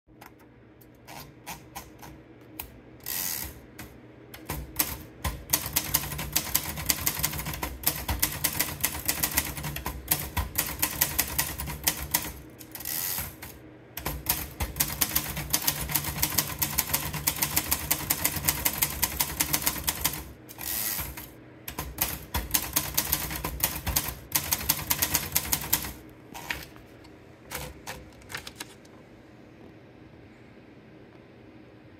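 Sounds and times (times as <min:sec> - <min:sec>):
paper feeding clicks: 0:00.2 - 0:29.0
typewriter carriage return: 0:03.0 - 0:26.8, 0:27.5 - 0:28.9
typewriter key clacks: 0:04.4 - 0:26.6.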